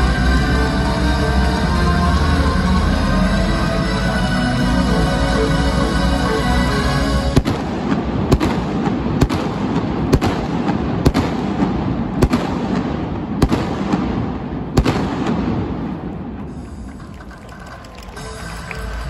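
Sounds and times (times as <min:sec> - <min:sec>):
music: 0:00.0 - 0:07.8, 0:16.5 - 0:19.0
fireworks bangs: 0:07.4 - 0:18.9
noisy background: 0:14.2 - 0:19.0.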